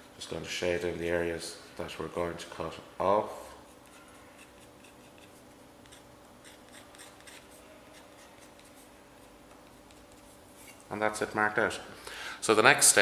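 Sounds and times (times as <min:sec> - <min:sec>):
scriber scratching sheet metal: 0:03.6 - 0:10.9.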